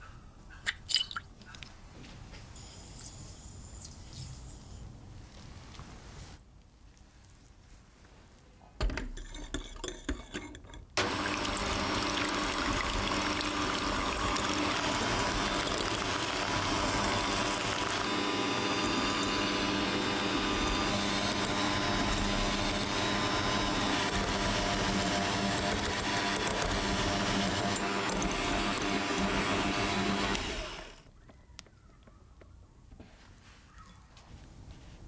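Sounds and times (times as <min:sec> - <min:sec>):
clinks and knocks: 0:08.8 - 0:11.0
electric hand mixer whirring: 0:11.0 - 0:31.1.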